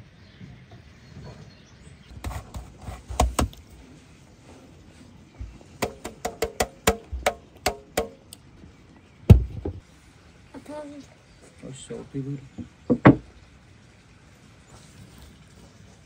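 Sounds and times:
metal grater tapping on wood: 5.8s - 8.2s.

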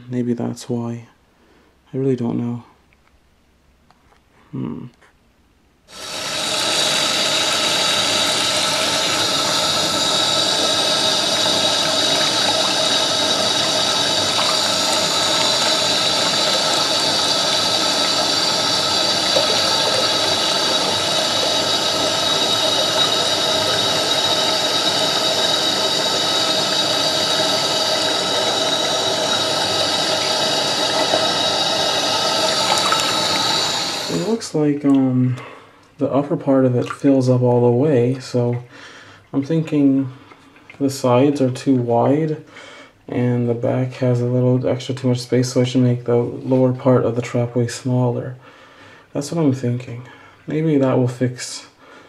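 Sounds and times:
tap water pouring: 5.9s - 35.1s, 36.6s - 37.7s.

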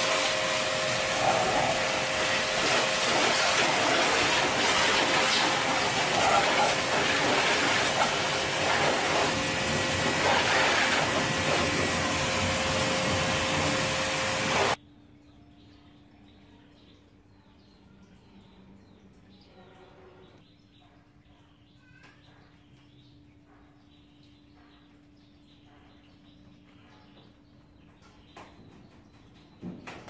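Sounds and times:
pressure washer hum: 0.0s - 14.8s
pressure washer spraying: 0.0s - 14.8s.

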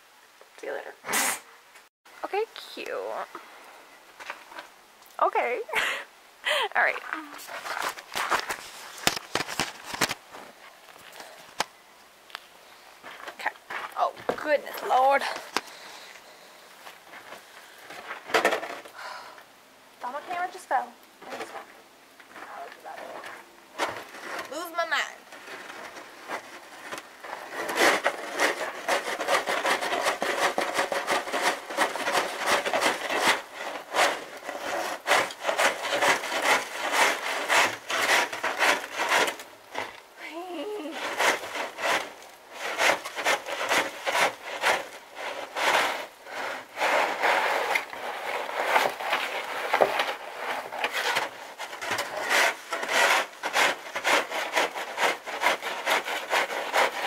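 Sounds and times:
snow shovel scraping wooden deck: 7.4s - 10.4s, 13.1s - 16.1s, 16.8s - 18.9s, 20.0s - 21.6s, 22.4s - 57.0s.

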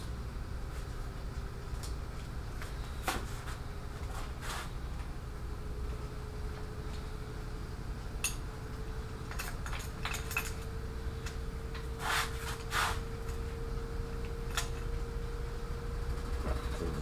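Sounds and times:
faint steady hum: 0.0s - 17.0s
timing chains clinking and rattling: 9.3s - 10.8s.

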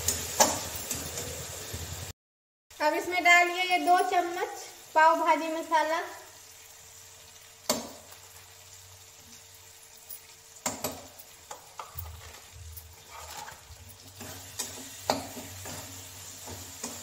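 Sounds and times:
spatula scraping metal pan: 11.5s - 17.0s.

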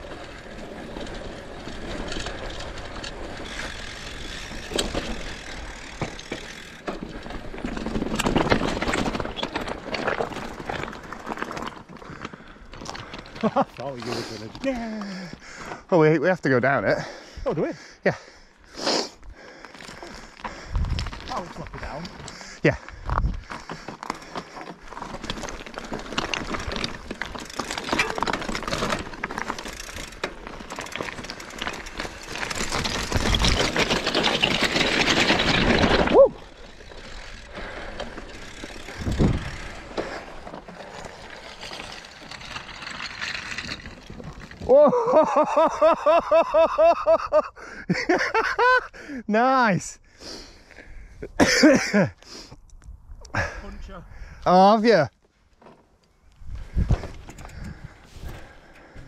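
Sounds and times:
bike clattering over rough ground: 0.0s - 17.2s, 19.5s - 47.2s, 54.7s - 59.0s
bicycle rattling clicks: 0.4s - 13.4s, 19.6s - 44.6s, 56.3s - 59.0s
wind rushing: 38.9s - 39.8s.

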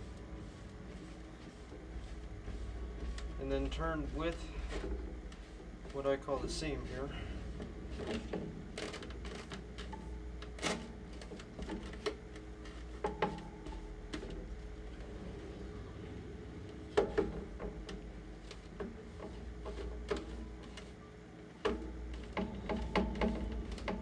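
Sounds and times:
rag wiping plastic: 0.0s - 15.1s, 16.9s - 21.0s
low steady hum: 0.0s - 24.0s.

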